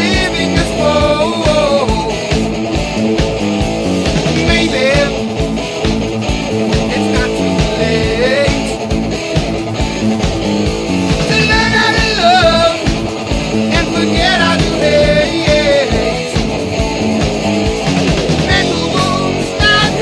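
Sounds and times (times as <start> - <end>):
person singing: 0.0 - 2.5, 4.3 - 5.3, 6.8 - 8.9, 11.2 - 16.6, 18.3 - 20.0
guitar: 0.0 - 20.0
rock music: 0.0 - 20.0
steady beat: 0.0 - 20.0.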